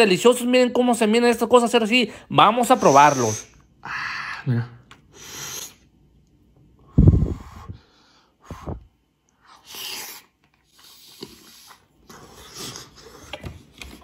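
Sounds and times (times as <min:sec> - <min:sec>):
man blowing short puffs: 0:05.1 - 0:05.9.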